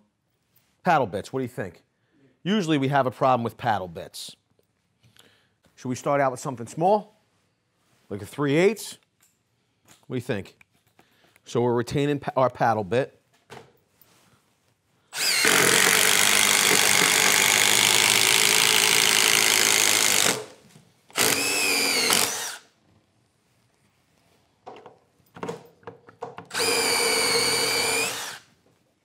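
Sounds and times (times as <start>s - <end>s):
impact driver boring into wood: 15.2s - 22.7s, 26.5s - 28.5s.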